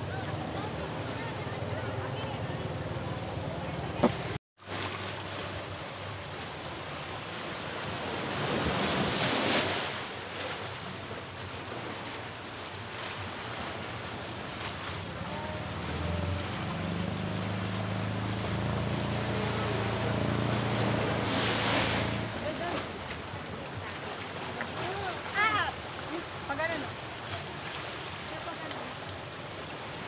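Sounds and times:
waves surging through rocks: 0.0 - 30.0.

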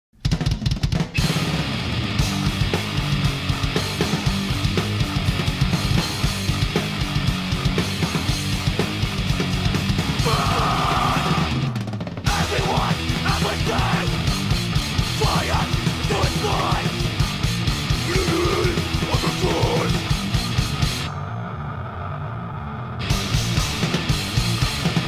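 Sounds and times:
fast punk band playing: 0.2 - 21.1, 23.0 - 25.0
shouted vocals: 10.2 - 14.3, 15.1 - 17.1, 18.0 - 20.1.

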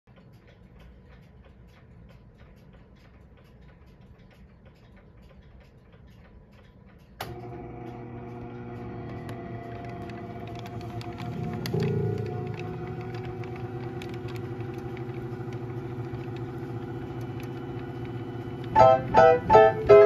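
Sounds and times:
player piano mechanism ticking: 0.1 - 20.0.

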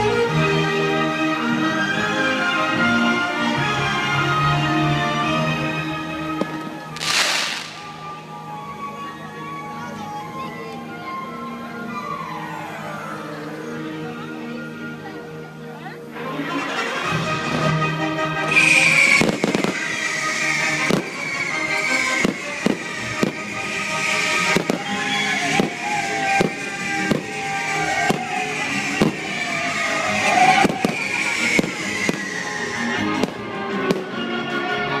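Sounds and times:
fireworks bursting with bangs: 6.3 - 8.6, 18.4 - 34.3
loud music: 6.9 - 8.4.

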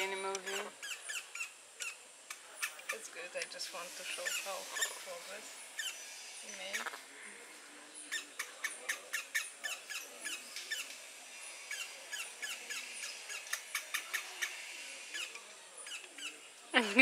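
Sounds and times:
baby monkey high chirps: 0.4 - 2.0, 4.2 - 5.1, 5.8 - 6.2, 8.1 - 11.0, 11.7 - 16.4.

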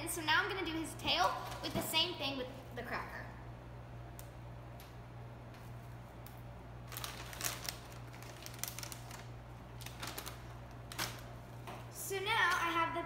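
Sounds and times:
steady low hum: 0.0 - 13.0
plastic bag crinkling: 6.8 - 11.6.

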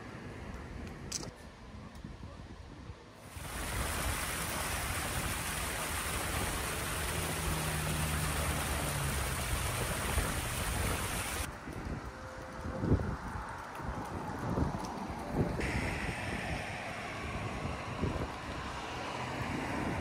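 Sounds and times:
waterfall splashing over rocks: 3.3 - 11.5.

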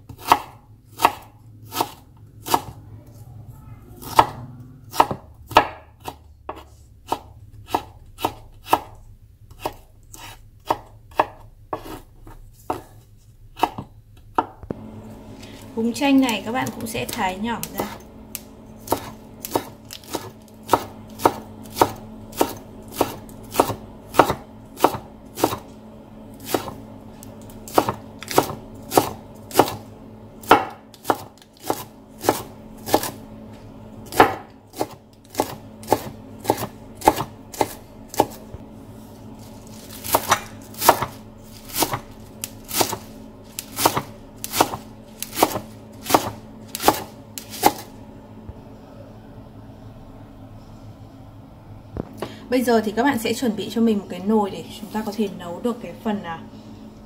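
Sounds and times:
faint steady hum: 0.0 - 57.0
knife chopping on wooden board: 0.1 - 2.8, 4.9 - 13.0, 13.6 - 14.6, 18.8 - 25.6, 26.4 - 26.8, 27.7 - 29.8, 30.4 - 33.2, 34.1 - 38.4, 40.0 - 42.0, 42.7 - 47.9.

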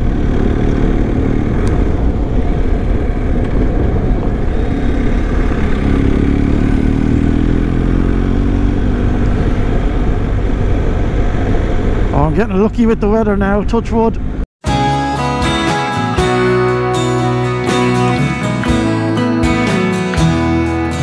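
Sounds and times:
dense rushing noise: 0.0 - 7.4
motorcycle engine running: 0.0 - 12.1.

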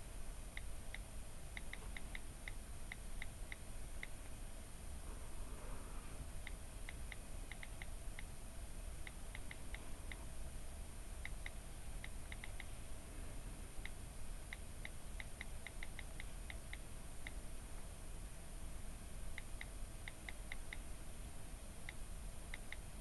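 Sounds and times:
faint steady hiss: 0.0 - 23.0.

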